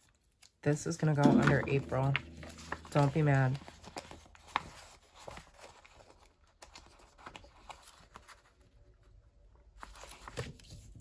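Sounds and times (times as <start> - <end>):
paper pages rustling: 1.9 - 9.0, 9.7 - 11.0.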